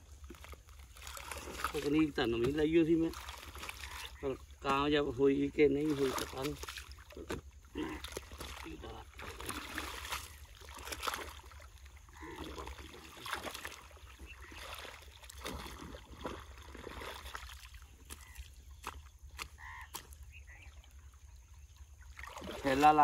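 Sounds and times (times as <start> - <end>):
water sloshing and trickling: 0.0 - 23.0
splashes in wet mud: 0.1 - 20.5, 22.0 - 23.0.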